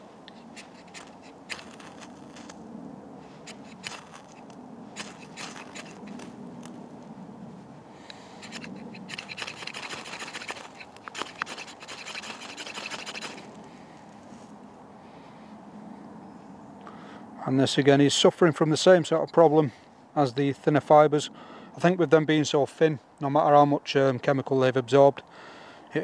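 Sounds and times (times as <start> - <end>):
knife scraping fire steel: 0.3 - 2.6, 3.4 - 6.4, 8.4 - 13.6.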